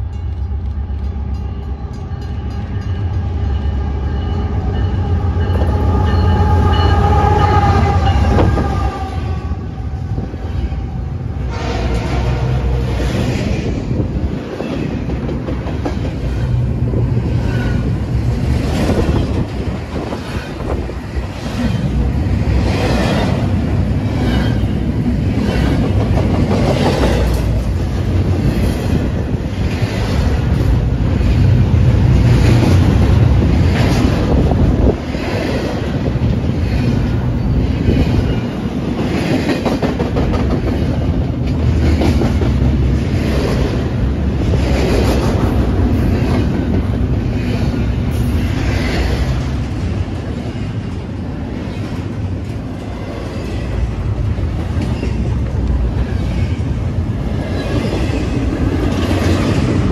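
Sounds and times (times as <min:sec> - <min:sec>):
train rumbling past: 0:00.0 - 0:59.9
train wheels clicking over rail joints: 0:13.2 - 0:59.9.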